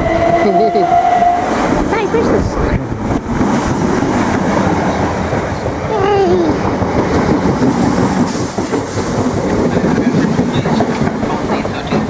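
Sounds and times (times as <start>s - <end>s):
train running noise: 0.0s - 12.0s
train wheels clattering over rail joints: 3.0s - 12.0s.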